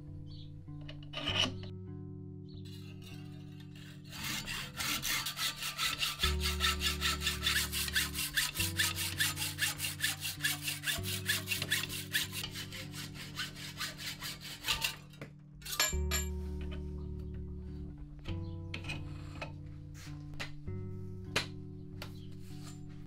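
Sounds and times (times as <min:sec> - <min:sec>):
hacksaw cutting metal tube: 0:00.8 - 0:01.7, 0:02.7 - 0:16.3, 0:18.8 - 0:19.5.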